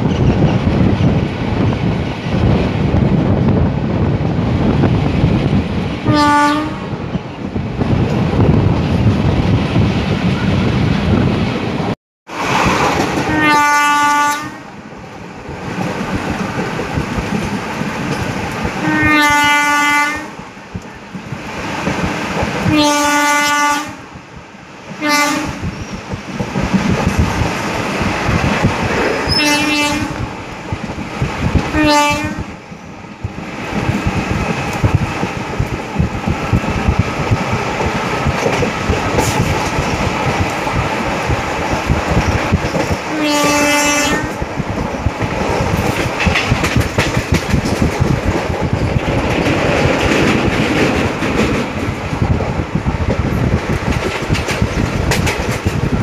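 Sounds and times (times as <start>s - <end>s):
wheels clacking on rails: 0.0s - 24.0s, 24.8s - 56.0s
train horn blasts: 6.1s - 6.9s, 13.3s - 14.7s, 18.8s - 20.4s, 22.7s - 24.0s, 25.0s - 25.7s, 29.3s - 30.2s, 31.8s - 32.5s, 43.1s - 44.4s.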